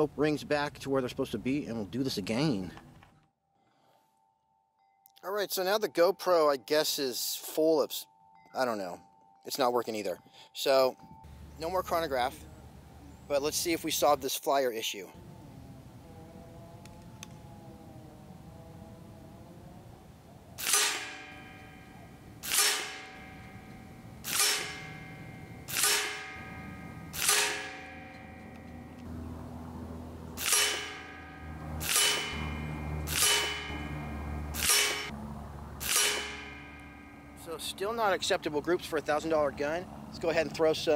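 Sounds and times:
air rifle shots with metallic ring: 20.6 - 28.7, 30.4 - 33.9, 34.6 - 35.1, 35.8 - 37.2.

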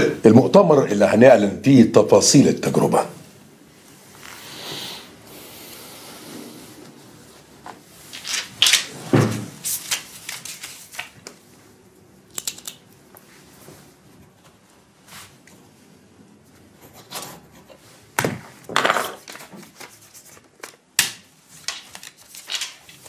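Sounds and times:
paper rustling: 7.3 - 11.4, 18.8 - 20.8, 21.5 - 23.0
pen clicks: 12.3 - 12.8.

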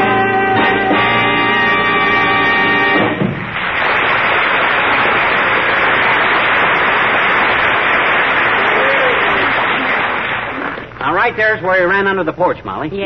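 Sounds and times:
audience applauding: 2.7 - 11.2.

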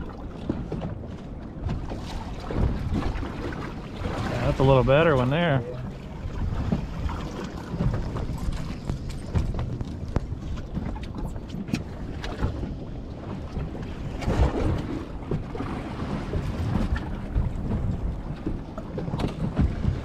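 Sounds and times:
water splashing against boat hull: 0.0 - 20.0
wind buffeting microphone: 0.0 - 20.0.

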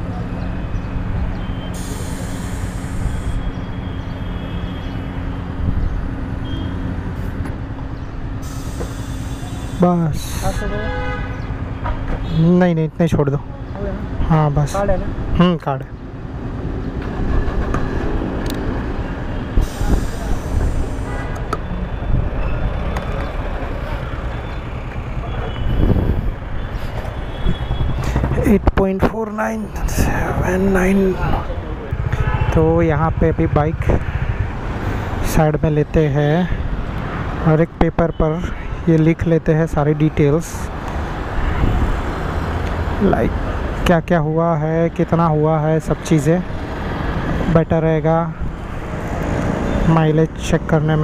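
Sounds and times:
fuel nozzle hiss: 1.8 - 3.4, 8.4 - 9.8, 19.6 - 21.3.

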